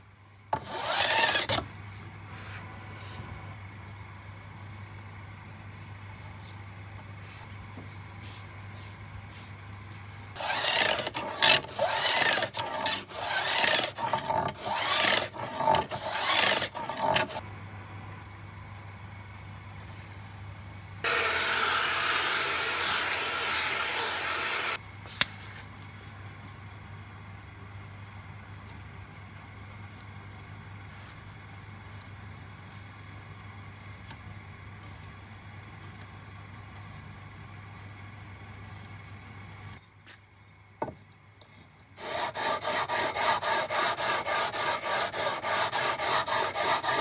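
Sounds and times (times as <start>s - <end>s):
low steady hum: 0.0s - 21.1s
file scraping metal frets: 0.6s - 1.6s, 10.4s - 17.4s, 42.0s - 47.0s.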